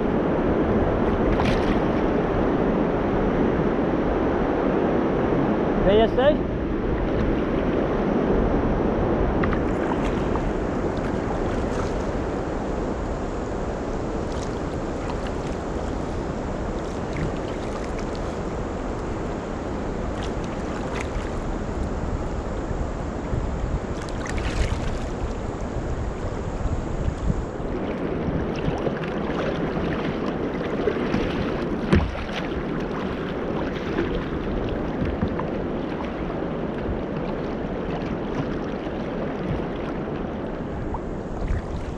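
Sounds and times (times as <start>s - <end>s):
water splashing against kayak hull: 0.0s - 3.2s, 6.6s - 41.9s
wind buffeting microphone: 0.0s - 41.9s
knocks on kayak: 31.9s - 32.4s.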